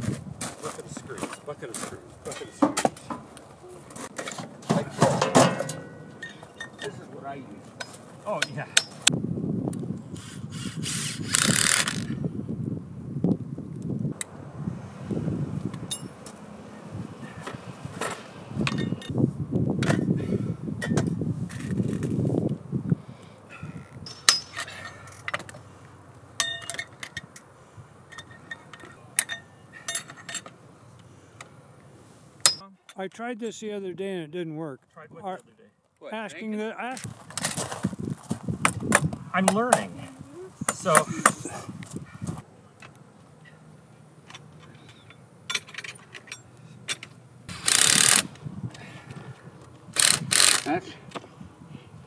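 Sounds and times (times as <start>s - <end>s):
metal parts and tools clinking: 4.0s - 7.0s, 11.3s - 12.2s, 15.9s - 16.2s, 18.0s - 19.2s, 24.0s - 25.6s, 26.4s - 27.5s, 28.1s - 30.6s, 44.3s - 48.3s, 50.0s - 50.8s
metal tools tapping on rail: 4.2s - 7.0s, 7.8s - 9.1s, 15.9s - 16.4s, 24.0s - 25.5s, 26.4s - 27.5s, 28.1s - 30.6s, 40.7s - 41.4s
battery-powered hand tool running: 47.5s - 48.3s, 50.0s - 50.7s.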